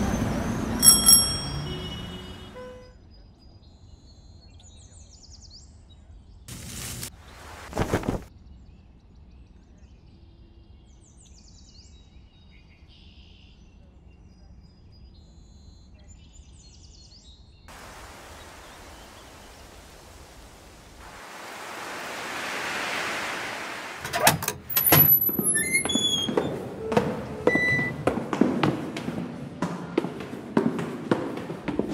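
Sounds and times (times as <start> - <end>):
short ringing squeaks: 0.8 - 2.9, 24.0 - 28.0
faint birds chirping: 8.4 - 24.0
hiss of noise: 17.7 - 24.3.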